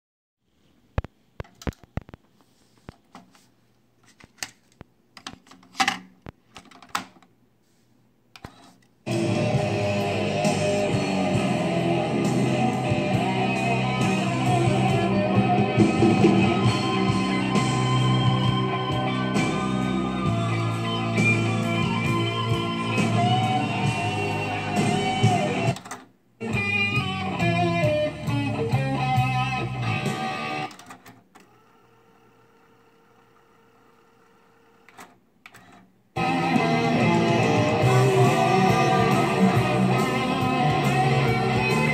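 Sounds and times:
rock music from cassette: 0:08.4 - 0:31.1, 0:36.2 - 0:41.9.

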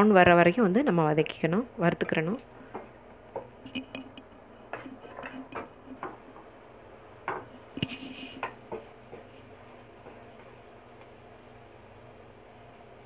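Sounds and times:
spatula scraping frying pan: 0:03.4 - 0:06.5.

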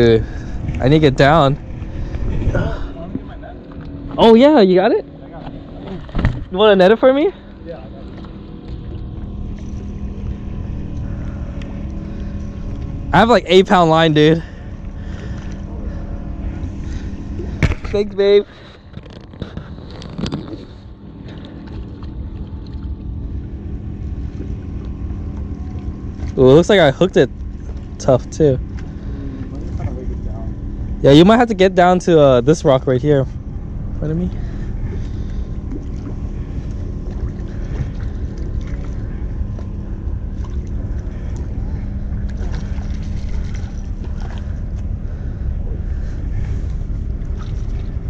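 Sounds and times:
wind buffeting microphone: 0:00.0 - 0:04.4
wind rumbling on microphone: 0:00.0 - 0:07.3, 0:07.9 - 0:48.0
steady low hum: 0:00.0 - 0:48.0.

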